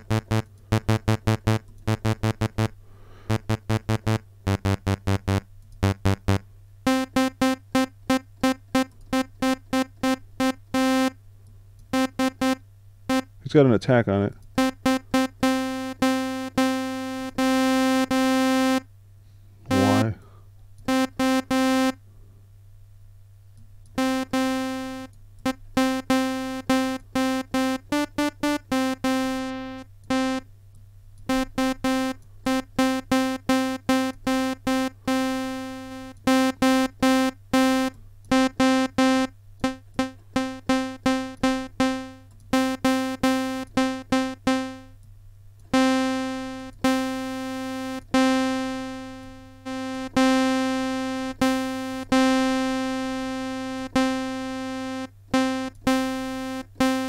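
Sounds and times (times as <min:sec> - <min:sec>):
synthesizer notes: 0:00.0 - 0:11.2, 0:19.7 - 0:20.2, 0:24.0 - 0:30.4, 0:31.3 - 0:44.9.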